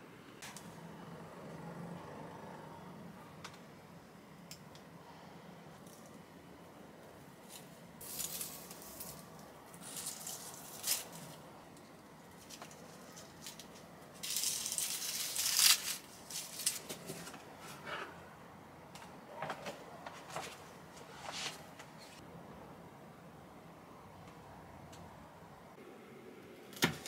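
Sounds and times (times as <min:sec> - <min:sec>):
rustling: 0:07.4 - 0:11.4, 0:12.3 - 0:17.8.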